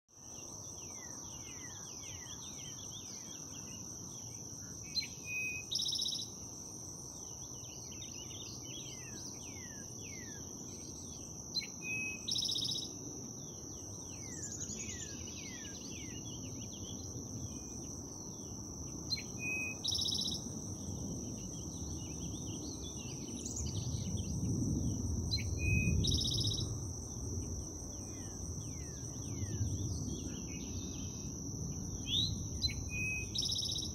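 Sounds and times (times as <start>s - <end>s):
bird song with buzzy trill: 4.9s - 6.4s, 7.3s - 21.0s, 25.3s - 26.8s, 32.0s - 33.9s
high-pitched insect drone: 8.1s - 33.9s.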